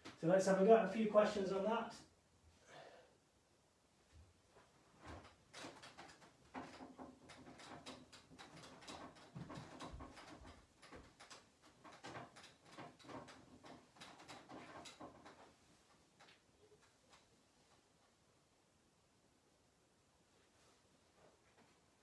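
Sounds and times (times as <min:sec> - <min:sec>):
small knocks: 0:05.0 - 0:17.3.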